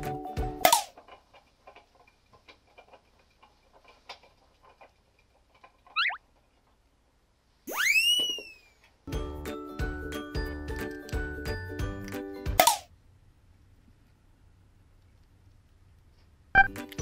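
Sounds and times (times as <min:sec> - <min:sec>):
chinchilla gnawing treat: 0:00.9 - 0:06.0
quick rising chirps: 0:06.0 - 0:06.2, 0:07.7 - 0:08.8
sliding whistle sound effect: 0:06.0 - 0:06.2, 0:07.7 - 0:08.8.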